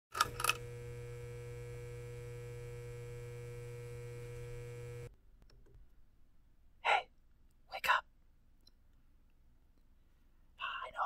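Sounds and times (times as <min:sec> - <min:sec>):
neon sign buzzing hum: 0:00.1 - 0:05.1
neon sign crackle: 0:00.2 - 0:05.1.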